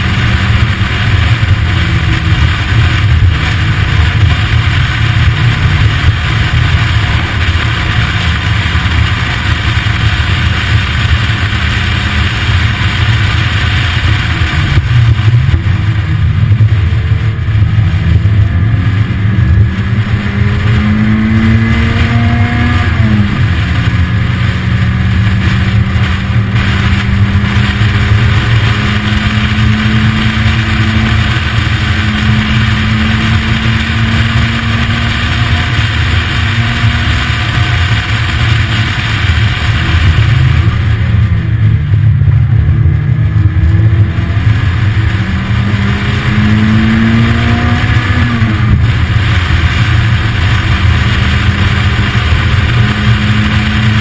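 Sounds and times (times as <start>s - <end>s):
car engine revving: 0.0s - 54.0s
wind noise on microphone: 0.0s - 54.0s.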